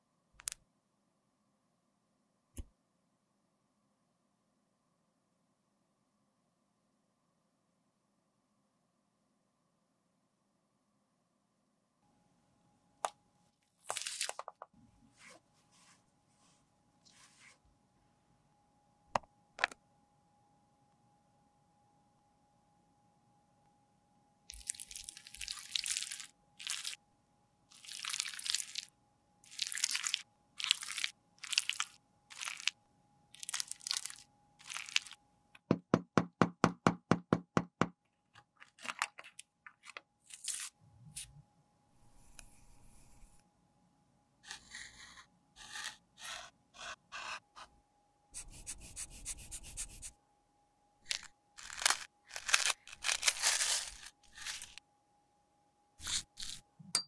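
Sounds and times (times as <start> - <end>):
packet tearing open: 13.9 - 14.4, 29.5 - 32.8, 33.4 - 35.2, 40.3 - 40.7, 51.1 - 54.8
tool scraping pressed powder: 44.4 - 47.8, 51.1 - 54.8, 56.0 - 56.7
metal spoon scraping powder: 44.5 - 47.4, 51.1 - 54.8, 56.0 - 56.6.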